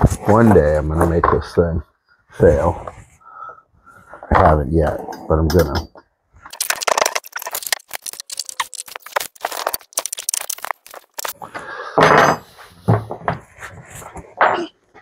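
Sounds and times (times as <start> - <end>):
chain scraping: 6.5 - 11.4.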